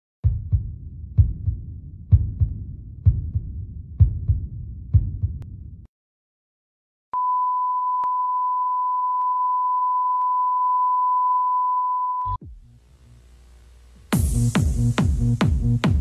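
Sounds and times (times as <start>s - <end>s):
electronic beep tone: 7.2s - 12.4s
low hum: 12.4s - 14.9s.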